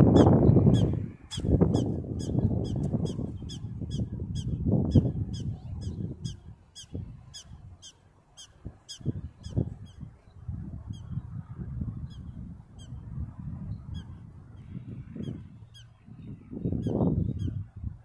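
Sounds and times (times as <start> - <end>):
wind rumbling on microphone: 0.0 - 18.0.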